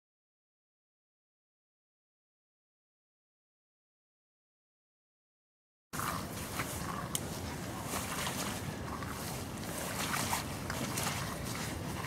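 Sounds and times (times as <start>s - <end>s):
wind buffeting microphone: 6.0s - 12.0s.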